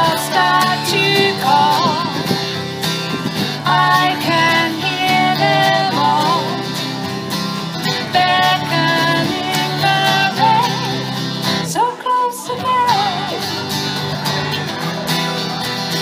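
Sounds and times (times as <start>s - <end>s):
strummed acoustic guitars: 0.0s - 16.0s.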